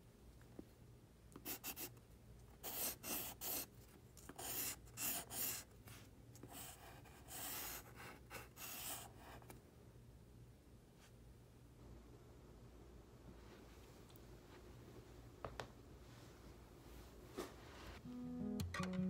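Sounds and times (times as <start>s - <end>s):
pencil scratching on paper: 1.4s - 1.9s, 2.6s - 5.7s, 6.4s - 9.5s.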